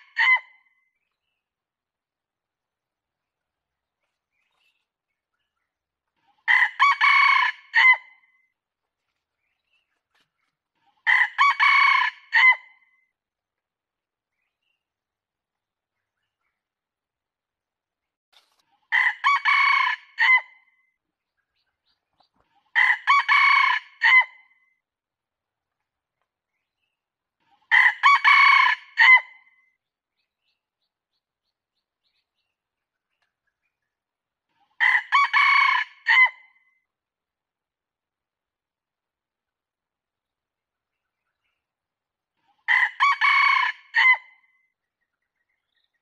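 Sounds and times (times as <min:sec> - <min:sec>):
rooster crowing: 0:42.7 - 0:44.2.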